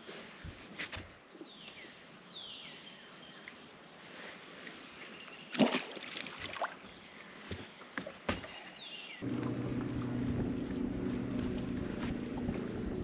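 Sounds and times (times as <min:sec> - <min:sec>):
fish splashing into water: 0:05.5 - 0:06.8.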